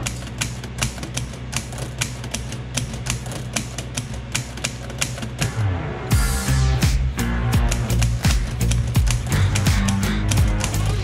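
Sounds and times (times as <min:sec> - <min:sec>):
typewriter key clicks: 0:00.0 - 0:05.4
background music: 0:00.0 - 0:11.0.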